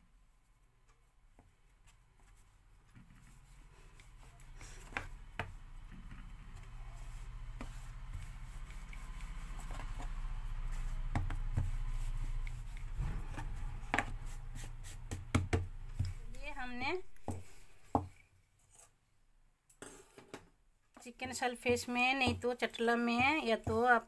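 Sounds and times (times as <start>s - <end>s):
dough rubbing and scraping: 1.4s - 19.0s, 21.6s - 24.0s
rolling pin knocking on board: 15.1s - 16.2s.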